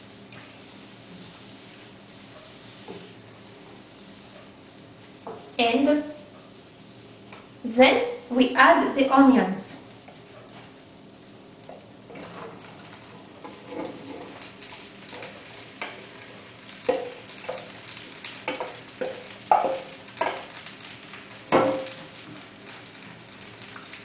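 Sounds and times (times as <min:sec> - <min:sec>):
onions sizzling in a frying pan: 0:00.0 - 0:24.0
knocks and scrapes of stirring: 0:13.4 - 0:16.0, 0:18.4 - 0:20.5.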